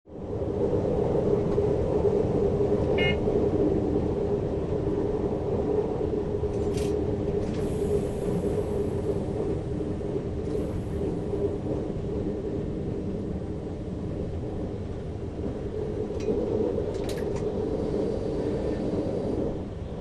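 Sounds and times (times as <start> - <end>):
diesel train rumbling: 0.1 - 20.0.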